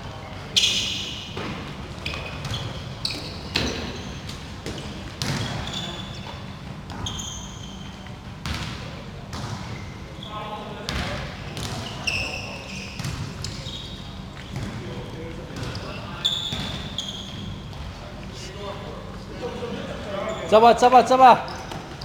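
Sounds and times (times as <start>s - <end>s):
sneakers squeaking on wooden floor: 0.5s - 8.2s, 9.3s - 18.0s, 20.2s - 20.7s, 21.4s - 22.0s.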